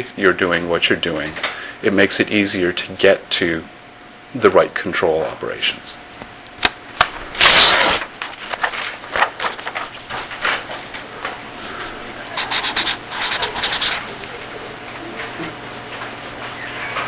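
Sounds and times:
scratching and rubbing on a surface: 12.3 - 14.3.

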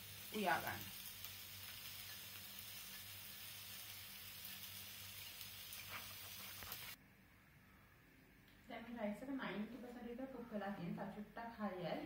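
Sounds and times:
stock simmering in a pot: 0.0 - 7.0.

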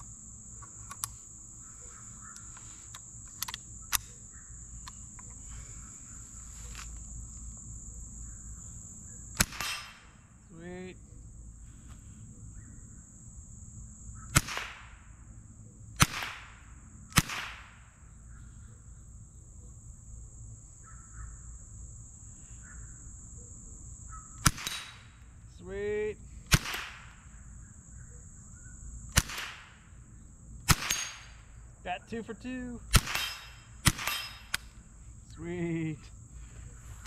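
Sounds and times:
high-pitched insect drone: 0.0 - 37.0
bullets striking steel targets: 9.4 - 10.2, 24.4 - 25.1, 30.7 - 31.5, 32.9 - 34.8
rifle shots: 9.4 - 10.2, 14.3 - 15.0, 16.0 - 17.8, 24.4 - 25.1, 26.5 - 27.2, 29.1 - 29.8, 30.7 - 31.5, 32.9 - 34.7.

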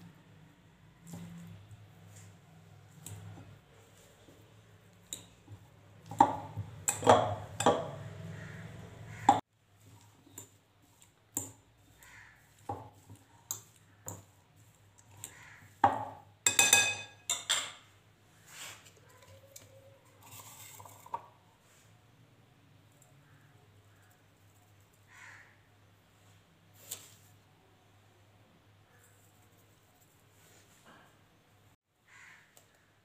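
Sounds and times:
fork clinking and scraping glass bowl: 16.5 - 17.8.

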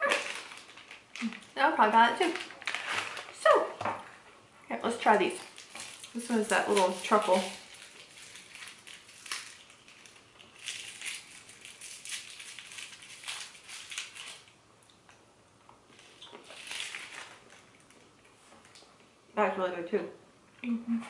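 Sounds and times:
foil wrapper crinkling: 0.0 - 3.7, 5.0 - 14.6, 15.9 - 18.9.

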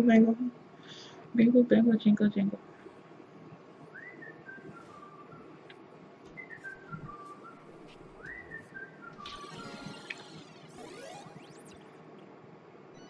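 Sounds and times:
faint whistled tune: 3.8 - 11.6.

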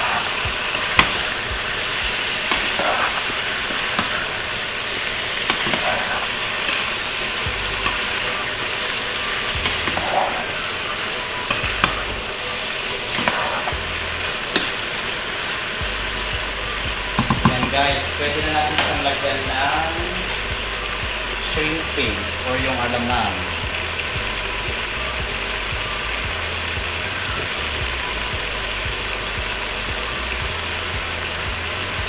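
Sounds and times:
pork sizzling in a pot: 0.0 - 32.0.

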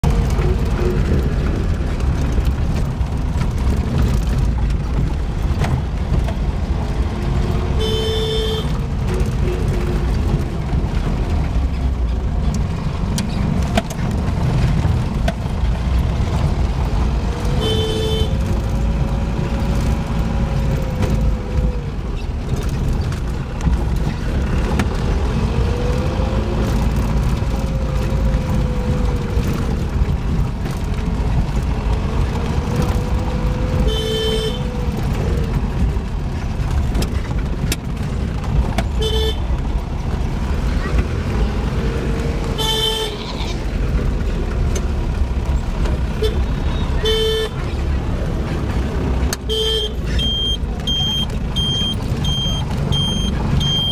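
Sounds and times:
car interior rumble: 0.0 - 53.9
car horn toot: 7.8 - 8.8, 17.6 - 18.4, 33.8 - 34.6, 39.0 - 39.5, 42.6 - 43.3, 46.2 - 47.6, 49.5 - 51.7.

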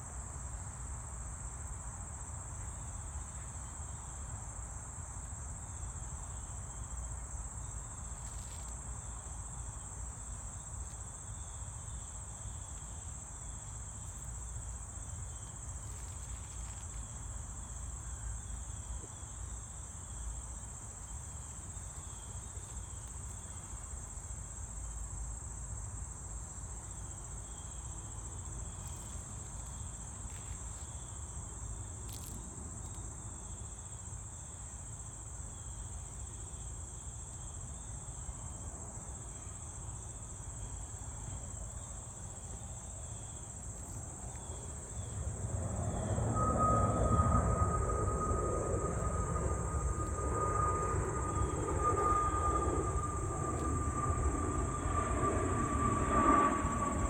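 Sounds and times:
insects trilling: 0.4 - 57.0
low steady rumble: 44.8 - 57.0.

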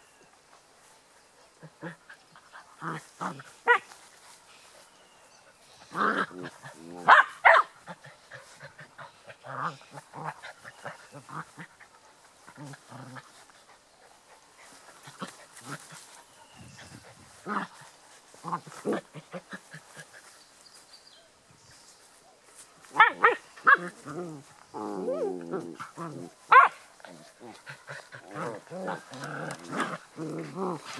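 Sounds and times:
puppies growling: 7.8 - 20.2, 23.0 - 30.9.

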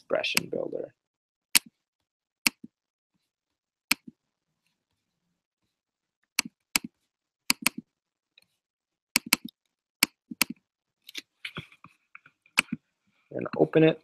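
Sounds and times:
computer mouse clicks: 2.5 - 2.7, 3.9 - 4.1, 6.4 - 6.9, 7.5 - 7.8, 9.2 - 11.3.

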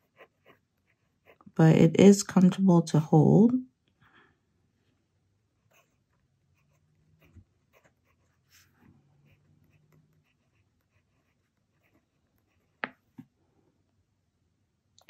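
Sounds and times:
pen nib scratching on paper: 0.0 - 1.6, 5.6 - 12.8.

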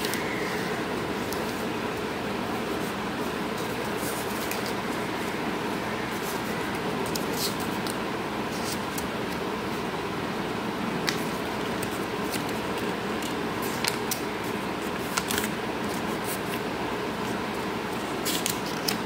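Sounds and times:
steady background hiss: 0.0 - 19.0
paper crackling while folded: 2.6 - 9.8, 11.0 - 19.0.

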